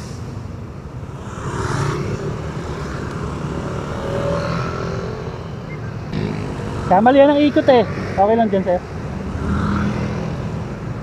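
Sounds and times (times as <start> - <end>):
road noise: 0.0 - 11.0
motorcycle passing by: 1.0 - 11.0.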